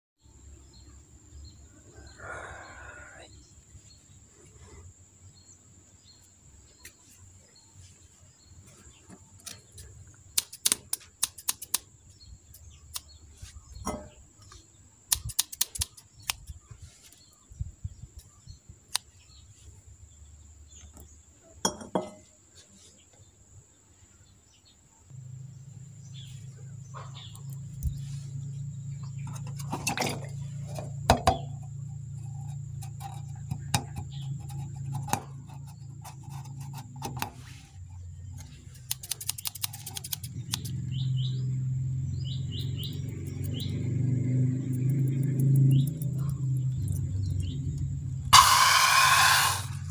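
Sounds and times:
scissors and balloons clicking: 10.3 - 11.9, 15.1 - 16.6, 38.4 - 40.7.

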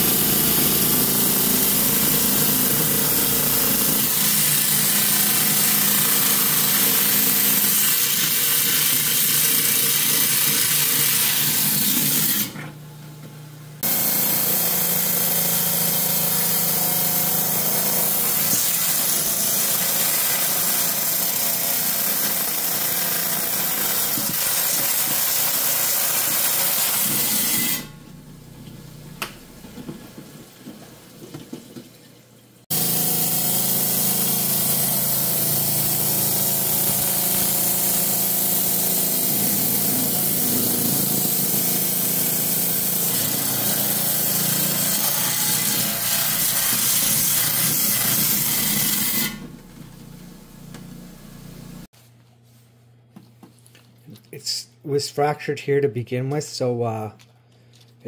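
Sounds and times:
motor hum: 32.7 - 51.9.

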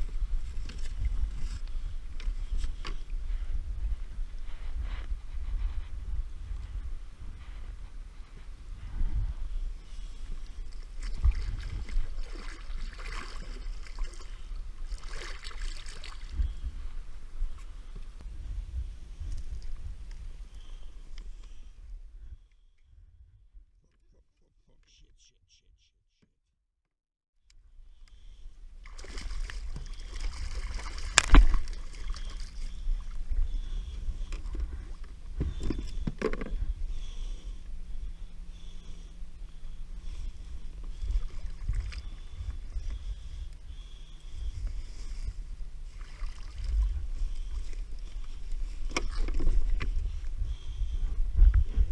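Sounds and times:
steady low rumble: 0.0 - 15.2, 16.0 - 25.6, 27.5 - 51.9
water splashing against kayak: 10.5 - 16.5, 28.8 - 33.2, 44.9 - 50.0
seawater splashing: 28.8 - 32.7.

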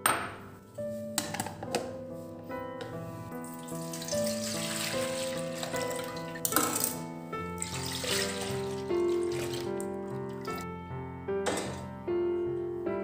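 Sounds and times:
instrumental music: 0.0 - 13.0
water running: 3.3 - 10.7
water splash: 3.5 - 7.0, 7.6 - 10.6.

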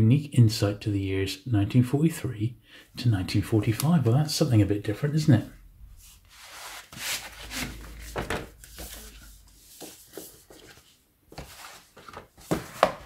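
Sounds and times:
book pages turning: 6.3 - 13.0.

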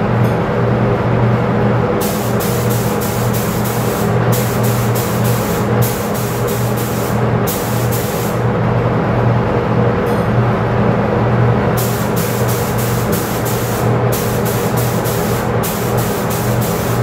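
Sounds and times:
spray gun hissing: 2.0 - 8.4, 11.8 - 17.0.

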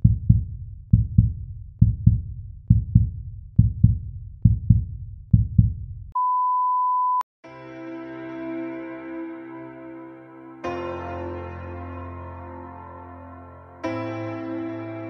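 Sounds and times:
deep heartbeat-like thumps: 0.0 - 6.1
music with keyboard chords: 7.5 - 15.0.

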